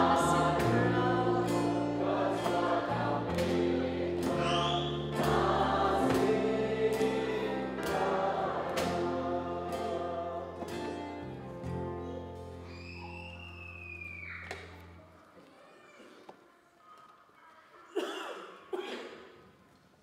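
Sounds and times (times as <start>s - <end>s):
group singing: 0.0s - 11.3s
guitar: 0.0s - 15.3s.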